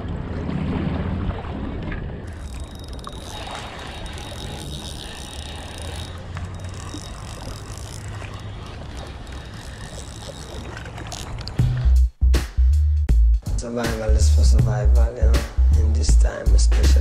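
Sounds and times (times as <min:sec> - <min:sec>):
faint clicks: 0:02.3 - 0:11.6.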